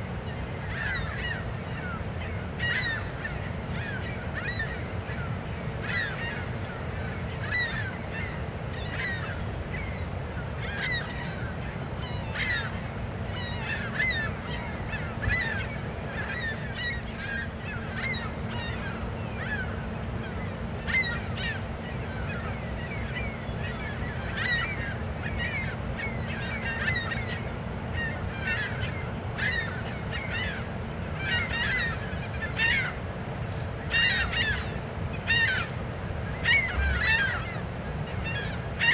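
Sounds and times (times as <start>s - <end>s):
low rumble and hum: 30.6s - 38.9s
short bird calls: 31.3s - 38.9s.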